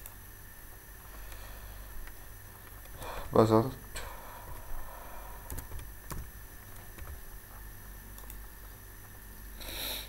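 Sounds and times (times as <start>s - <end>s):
electrical hum and hiss: 0.0s - 10.0s
computer mouse clicks: 5.4s - 7.2s, 8.1s - 8.6s.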